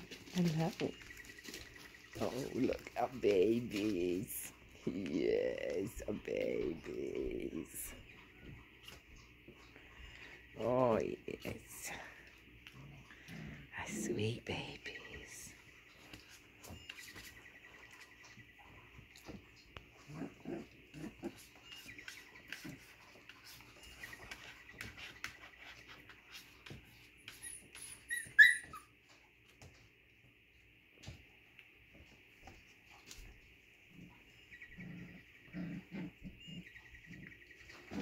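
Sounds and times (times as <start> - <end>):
paws scratching on bedding: 0.0 - 4.8, 15.2 - 29.8
puppies grunting and whimpering: 0.0 - 14.5, 16.4 - 29.0, 33.9 - 38.0
puppy yelping: 27.3 - 29.0.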